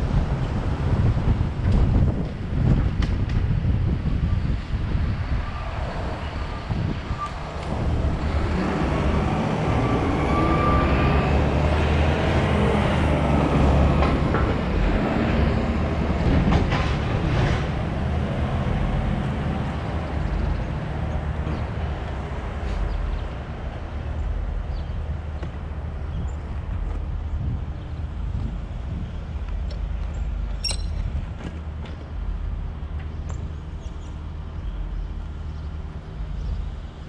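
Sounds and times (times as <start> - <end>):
truck diesel engine passing: 4.4 - 26.0.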